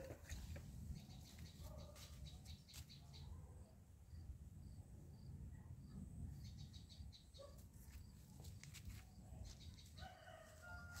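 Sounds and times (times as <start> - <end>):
small birds chirping: 0.0 - 4.2, 5.2 - 10.0
distant rooster crowing: 10.0 - 11.0.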